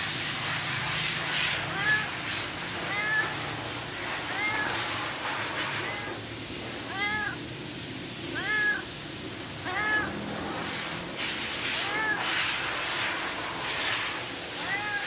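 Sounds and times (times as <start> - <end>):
faint hiss: 0.0 - 15.0
cat meowing: 1.6 - 7.5, 8.3 - 9.0, 9.6 - 10.8, 11.6 - 13.1, 13.7 - 15.0.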